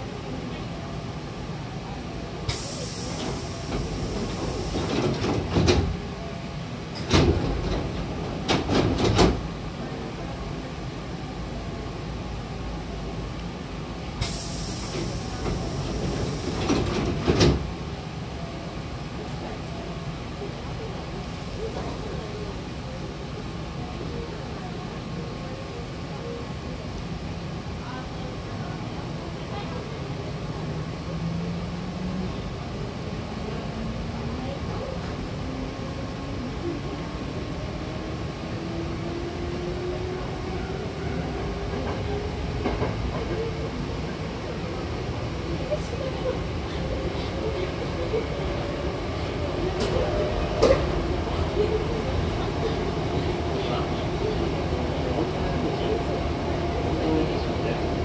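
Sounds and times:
train low hum: 0:00.0 - 0:58.0
air hiss of door engines: 0:02.5 - 0:05.2, 0:14.2 - 0:16.8
train doors thumping shut: 0:02.5 - 0:06.0, 0:06.9 - 0:09.5, 0:14.2 - 0:17.7, 0:49.8 - 0:51.0.

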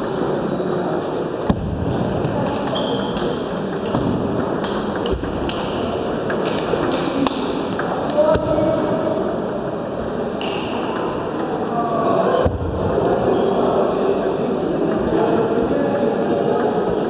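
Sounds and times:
hubbub of busy hall: 0:00.0 - 0:17.0
table tennis balls clicking: 0:02.3 - 0:08.2.

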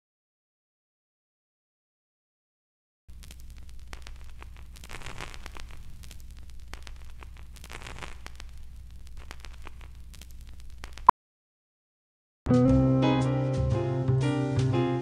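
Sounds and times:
clicks and pops: 0:03.1 - 0:11.1
film crackle and hiss: 0:03.1 - 0:11.1.

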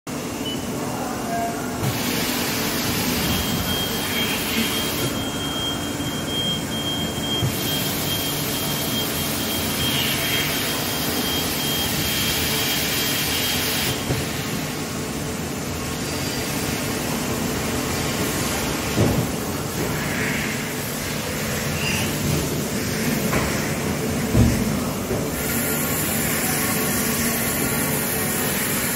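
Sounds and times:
coolant spray hissing: 0:01.9 - 0:03.3.

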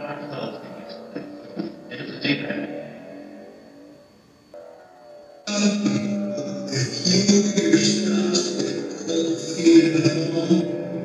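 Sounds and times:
music: 0:00.0 - 0:11.0.

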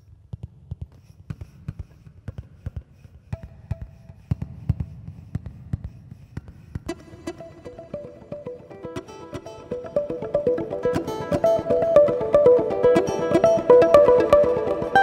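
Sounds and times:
plucked-string melody: 0:06.9 - 0:15.0.

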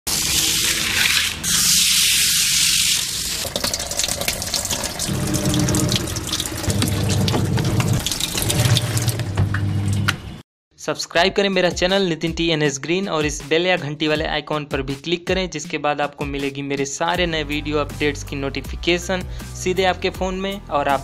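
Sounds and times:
water gushing into tub: 0:00.1 - 0:10.1
water splashing: 0:00.1 - 0:10.2.

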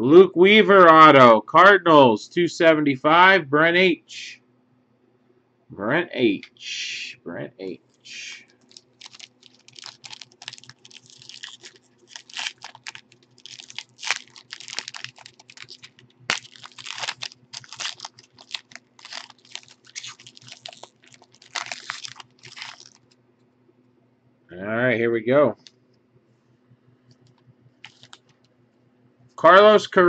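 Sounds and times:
faint low hum: 0:00.0 - 0:30.0
foil wrapper crinkling and tearing: 0:08.1 - 0:23.2, 0:27.8 - 0:28.4.

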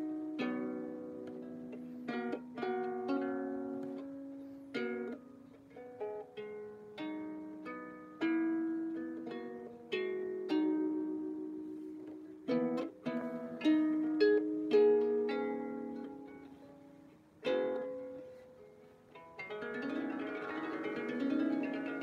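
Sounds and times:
out-of-tune harp plucked: 0:00.0 - 0:22.0.

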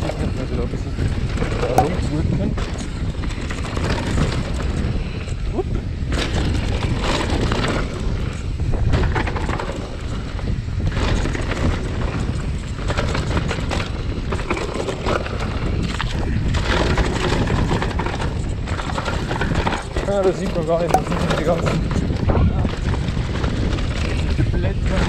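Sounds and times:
wind rumbling on microphone: 0:00.0 - 0:25.0
bike knocks and rattles: 0:06.0 - 0:25.0.

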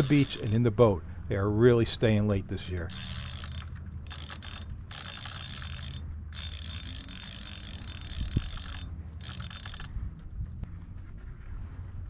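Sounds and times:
fishing reel gears whirring: 0:00.0 - 0:00.9, 0:01.9 - 0:10.0.

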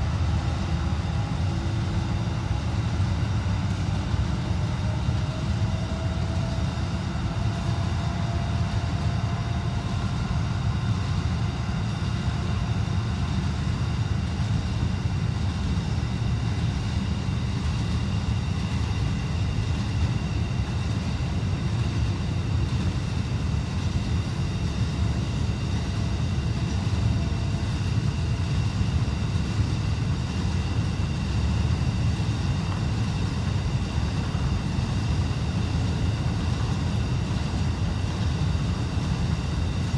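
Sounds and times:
freight train low rumble: 0:00.0 - 0:39.9.

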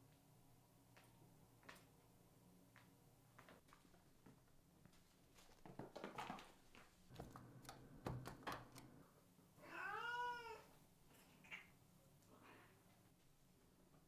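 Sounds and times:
cat claws clicking on wooden floor: 0:07.1 - 0:08.9
cat meowing: 0:09.6 - 0:10.7.

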